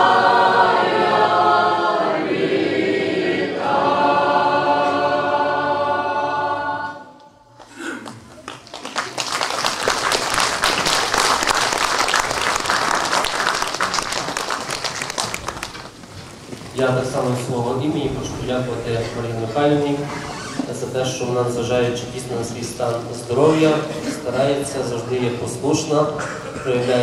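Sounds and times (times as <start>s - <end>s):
choir singing: 0.0s - 7.5s
audience applause: 7.6s - 16.1s.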